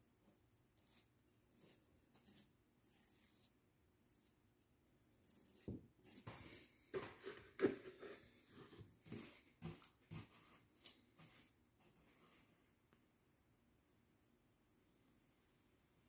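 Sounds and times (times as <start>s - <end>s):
brush swishing on wall: 5.3s - 12.8s.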